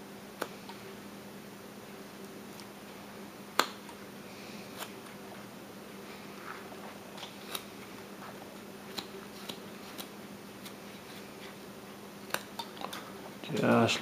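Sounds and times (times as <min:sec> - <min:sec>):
knife carving wood: 0:06.7 - 0:11.6.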